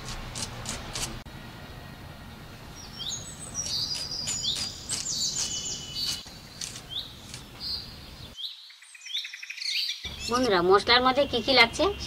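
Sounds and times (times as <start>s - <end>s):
small birds chirping: 2.7s - 12.0s.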